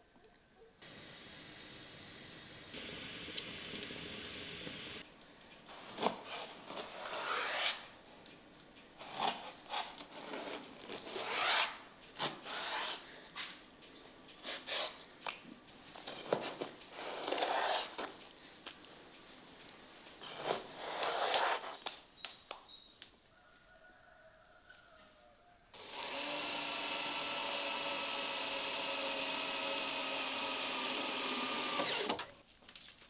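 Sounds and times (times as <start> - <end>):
steady hiss: 0.8 - 6.0.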